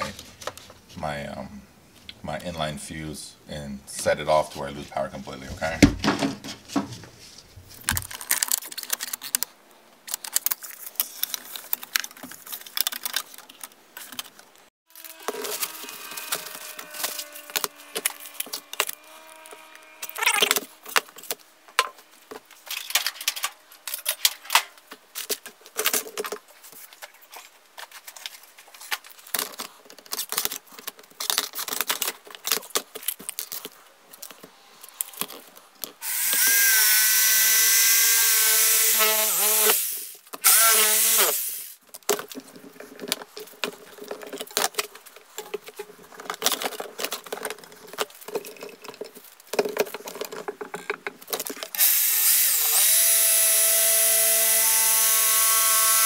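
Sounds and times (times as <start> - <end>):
rubbing and scraping plastic: 4.4 - 36.0, 41.8 - 51.8
handheld power tool running: 14.9 - 21.0, 36.0 - 41.8, 51.8 - 56.0.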